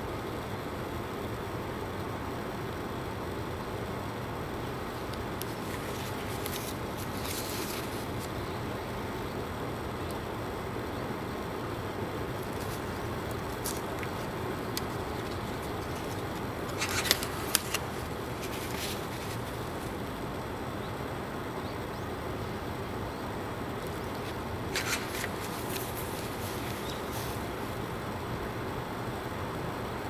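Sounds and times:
steady background noise: 0:00.0 - 0:30.0
paper pages turning: 0:05.4 - 0:08.4, 0:12.4 - 0:20.0, 0:24.0 - 0:27.9.

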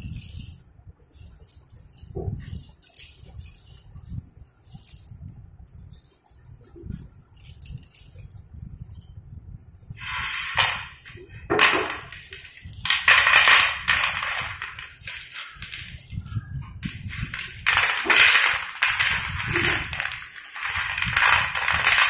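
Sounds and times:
slate pencils clattering onto plate: 0:10.0 - 0:22.0.

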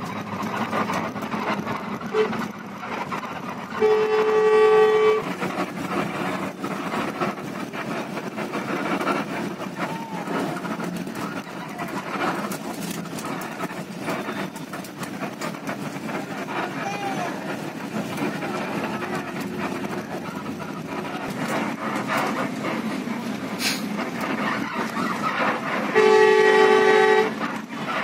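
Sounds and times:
bus running noise: 0:00.0 - 0:28.0
bus horn blast: 0:02.1 - 0:02.5, 0:03.8 - 0:05.3, 0:25.9 - 0:27.4.

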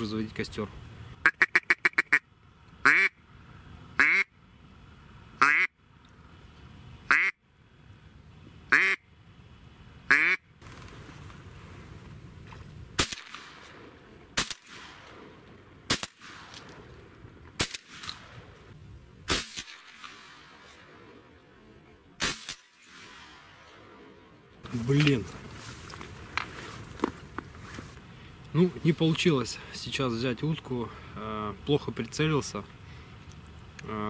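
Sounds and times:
duck call quacks: 0:01.2 - 0:02.2, 0:02.8 - 0:03.2, 0:04.0 - 0:04.3, 0:05.4 - 0:05.8, 0:07.1 - 0:07.4, 0:08.7 - 0:09.0, 0:10.1 - 0:10.4.

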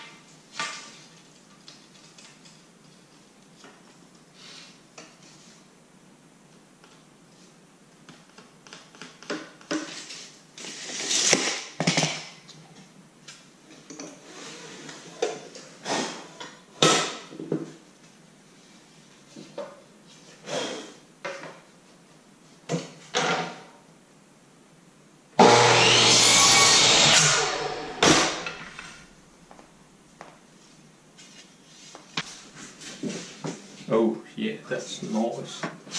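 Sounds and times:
miter saw cutting wood: 0:25.4 - 0:28.9.

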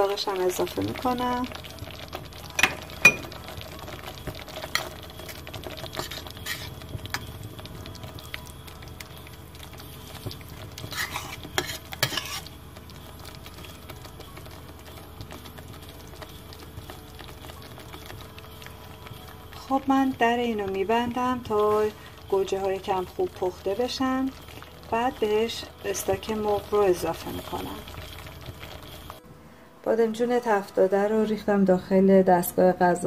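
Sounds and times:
metal spoon scraping metal pot: 0:05.9 - 0:06.8, 0:10.8 - 0:12.6.

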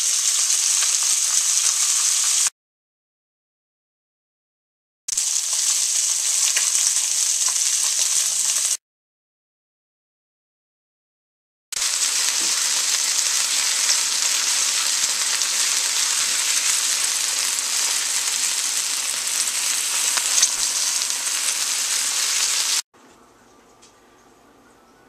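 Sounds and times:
meat sizzling in a pan: 0:00.0 - 0:02.5, 0:05.1 - 0:08.8, 0:11.8 - 0:22.8.

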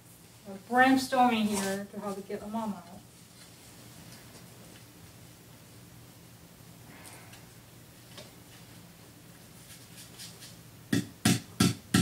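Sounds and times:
faint rustling: 0:01.1 - 0:04.9.

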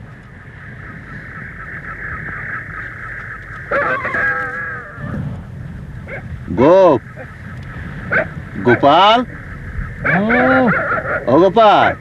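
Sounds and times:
steady high-pitched hum: 0:00.0 - 0:12.0
animal wavering cries: 0:03.7 - 0:05.3, 0:08.0 - 0:12.0.

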